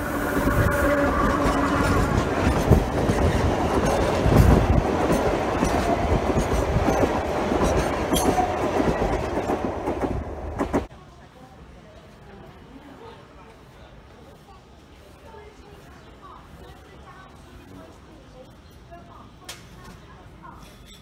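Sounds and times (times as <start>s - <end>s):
train wheels rumbling on track: 0.0s - 10.9s.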